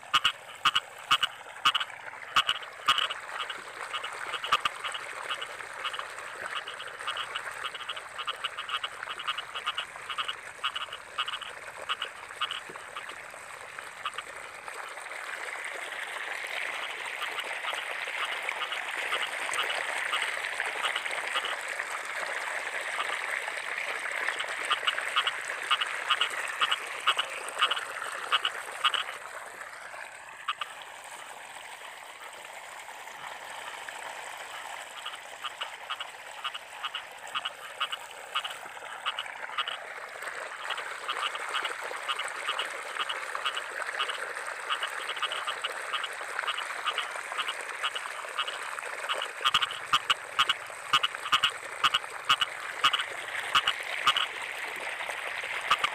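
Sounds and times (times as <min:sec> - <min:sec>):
frog croaking: 0:00.0 - 0:15.0, 0:15.7 - 0:29.3, 0:30.4 - 0:30.8, 0:34.4 - 0:55.9.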